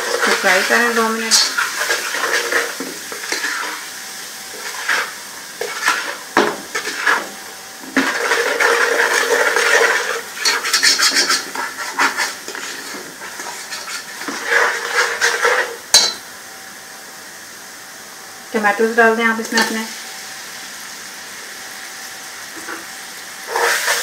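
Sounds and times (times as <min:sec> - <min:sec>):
spatula scraping pot: 0:00.0 - 0:03.9, 0:04.5 - 0:16.2, 0:23.4 - 0:24.0
paste frying in oil: 0:00.0 - 0:24.0.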